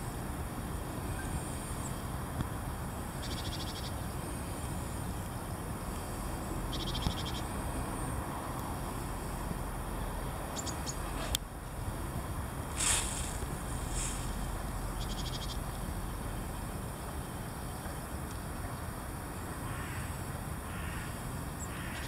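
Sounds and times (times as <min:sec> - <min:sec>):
rapid buzzing trills: 0:12.4 - 0:17.5.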